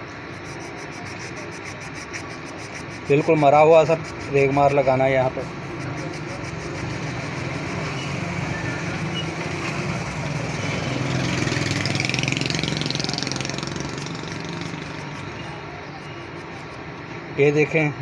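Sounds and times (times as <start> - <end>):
sandpaper rasping on metal shaft: 0.0 - 17.8
engine running: 4.3 - 17.4.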